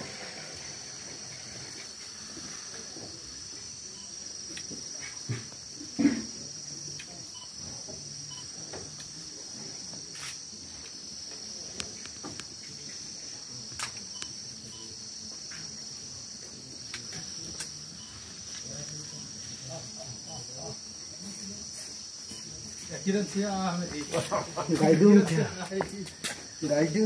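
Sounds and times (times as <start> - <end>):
insect chorus: 0.0 - 27.0.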